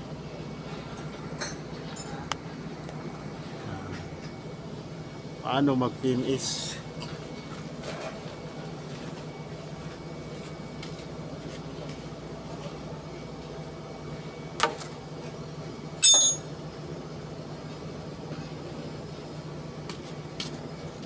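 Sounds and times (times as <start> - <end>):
low machinery hum: 0.0 - 21.0
sharp metallic clanks: 16.0 - 16.5.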